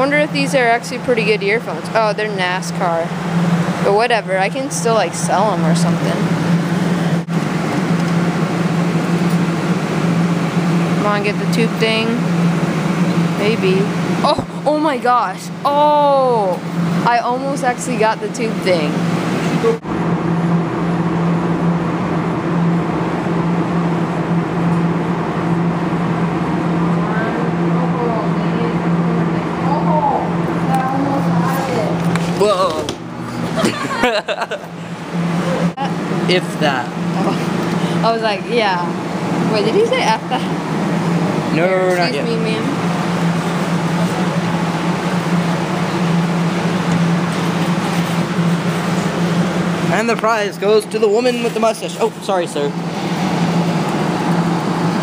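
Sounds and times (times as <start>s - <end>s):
electric hum: 0.0s - 55.0s.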